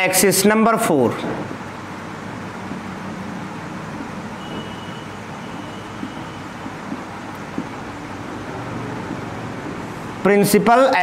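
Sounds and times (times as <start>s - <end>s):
background hiss and hum: 0.0s - 11.0s
marker squeaking on whiteboard: 4.0s - 8.0s.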